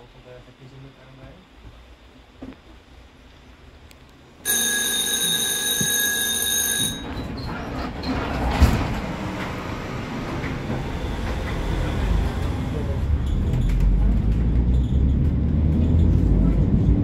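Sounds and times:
tram wheels and motors rumbling: 3.9s - 17.0s
steady high tone: 4.5s - 7.3s.

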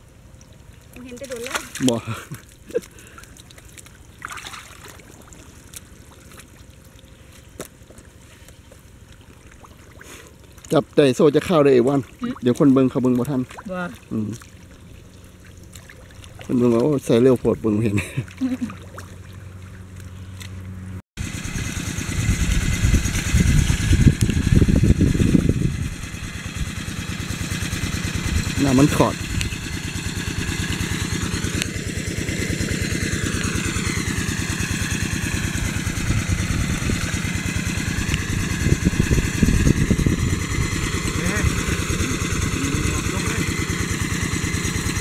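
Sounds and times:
muddy water splashing: 0.0s - 45.0s
steady low hum: 0.0s - 45.0s
tractor engine running steadily: 19.4s - 45.0s.

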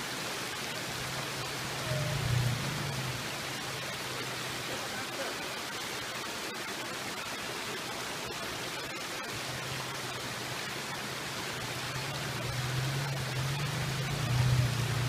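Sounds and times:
stream water rushing over rocks: 0.0s - 15.0s
truck engine hum: 1.0s - 4.2s, 11.6s - 15.0s.

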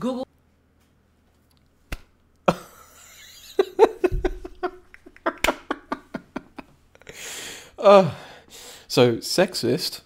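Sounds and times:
man laughing: 2.5s - 6.8s.

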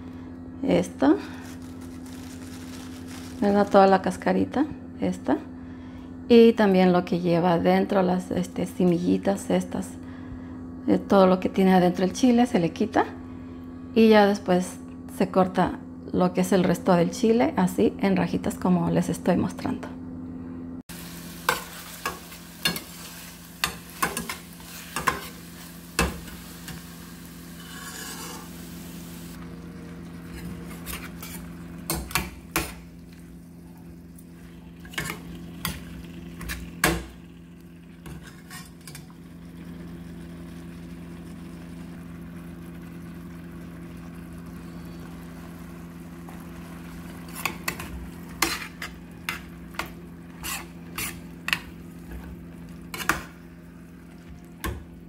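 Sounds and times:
steady low hum: 0.0s - 55.0s
light sizzling: 0.8s - 4.3s, 20.8s - 55.0s.

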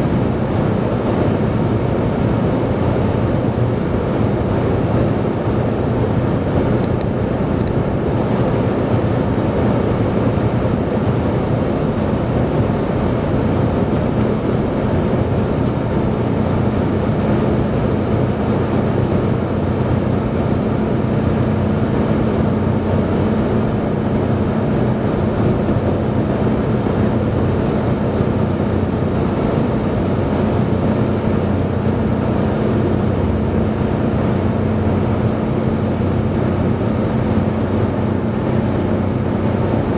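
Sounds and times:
tyre and wind rumble in car: 0.0s - 39.9s
low hum: 10.0s - 39.9s.

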